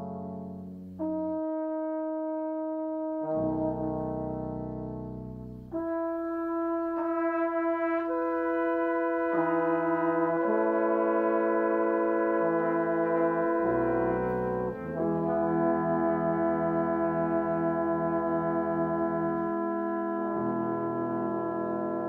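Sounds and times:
brass ensemble playing chords: 0:00.0 - 0:22.0
low brass bass part: 0:00.0 - 0:22.0.

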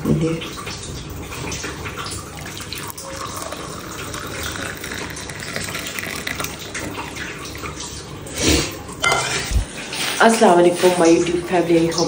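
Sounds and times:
tea trickling into a mug: 0:02.2 - 0:07.7
mug clinking: 0:09.0 - 0:09.4.

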